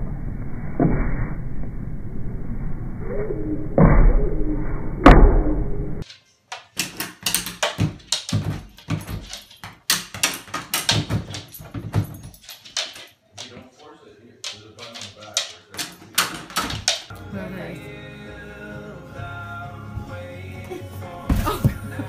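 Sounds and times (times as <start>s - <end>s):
outdoor noise: 0.0s - 13.8s
pet door flap clacking: 6.7s - 13.6s, 14.5s - 17.1s.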